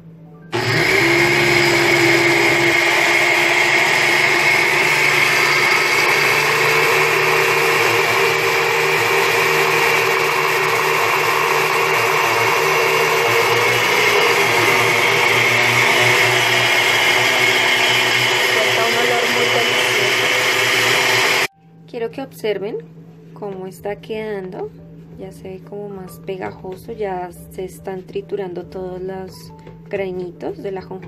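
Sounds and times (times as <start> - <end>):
blender grinding seeds: 0.5 - 21.5.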